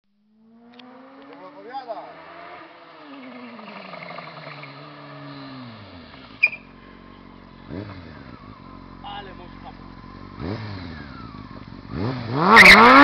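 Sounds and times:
motorcycle engine running: 0.2 - 13.0.

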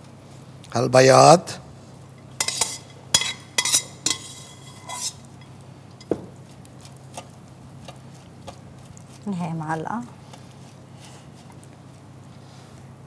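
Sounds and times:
metal tongs clanking on pot: 2.4 - 6.1.

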